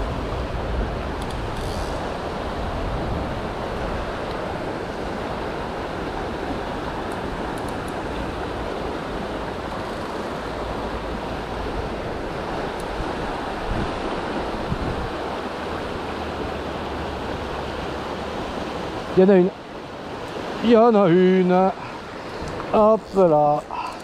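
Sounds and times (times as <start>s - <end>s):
wind rumble on microphone: 0.0s - 19.0s
river current rushing: 0.0s - 24.0s.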